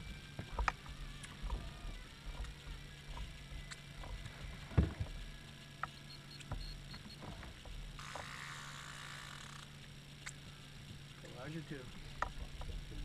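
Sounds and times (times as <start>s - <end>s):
gear knocking and clicking: 0.0s - 5.2s
low steady hum: 0.0s - 13.0s
soft hiss: 0.0s - 13.0s.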